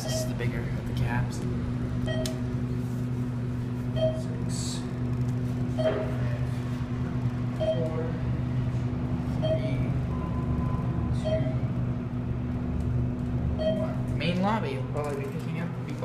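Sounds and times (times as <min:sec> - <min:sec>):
elevator machinery hum: 0:00.0 - 0:16.0
short beep: 0:04.0 - 0:04.3, 0:05.8 - 0:06.3, 0:09.4 - 0:11.7, 0:13.6 - 0:14.0.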